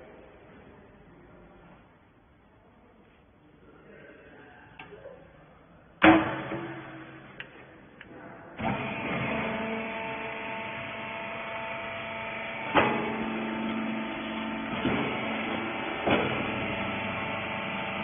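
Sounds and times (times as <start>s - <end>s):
sharp clunk: 6.0s - 7.4s, 16.0s - 16.5s
electric motor humming: 8.6s - 18.0s.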